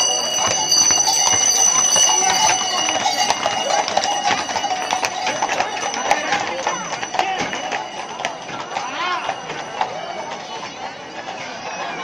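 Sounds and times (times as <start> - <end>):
bells ringing: 0.0 - 12.0
horse hooves on pavement: 0.0 - 12.0.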